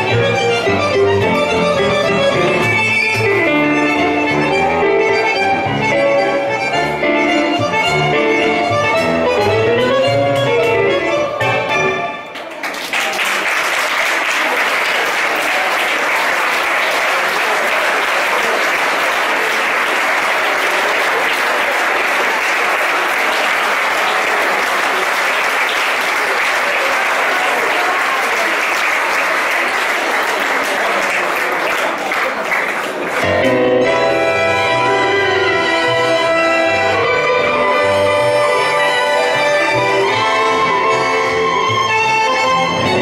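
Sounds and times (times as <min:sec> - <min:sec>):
violin bandoneon and piano tango: 0:00.0 - 0:12.2, 0:33.2 - 0:43.0
audience applauding: 0:12.3 - 0:33.5.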